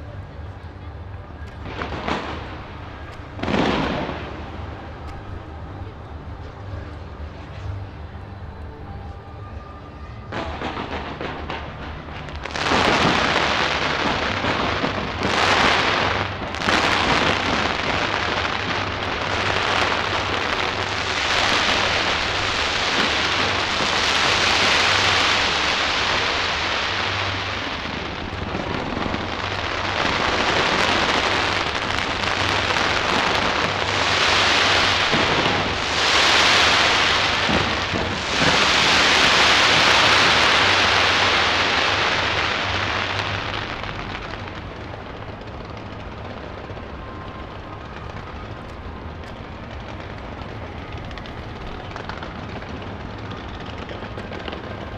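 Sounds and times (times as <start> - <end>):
fireworks crackling and hissing: 0.0 - 9.2, 10.2 - 54.9.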